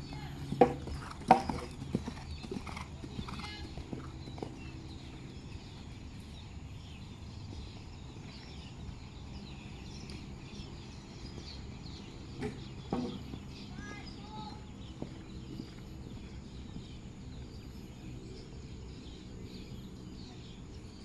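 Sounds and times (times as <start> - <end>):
horse hoofbeats on sand: 0.0 - 6.4, 10.0 - 17.2.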